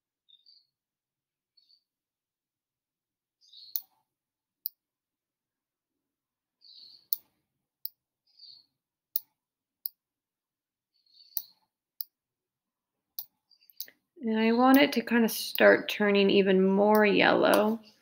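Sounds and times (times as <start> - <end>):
mouse button clicking: 11.2 - 12.1.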